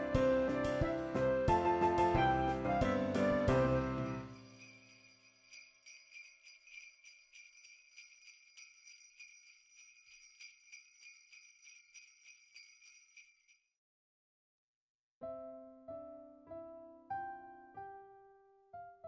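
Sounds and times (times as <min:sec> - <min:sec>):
sleigh bells shaken: 0:03.7 - 0:13.7.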